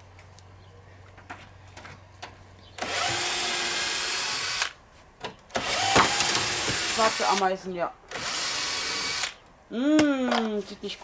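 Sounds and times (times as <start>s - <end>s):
cordless drill running: 2.8s - 4.8s, 5.6s - 7.4s, 8.1s - 9.4s.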